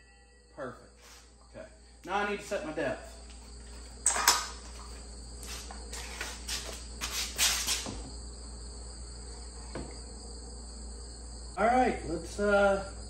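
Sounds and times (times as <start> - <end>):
faint high-pitched tone: 0.0 - 1.0.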